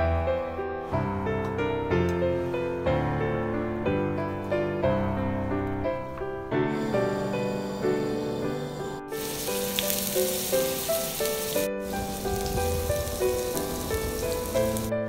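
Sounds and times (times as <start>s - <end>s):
piano music: 0.0s - 15.0s
tofu sizzling in hot oil: 9.1s - 14.9s.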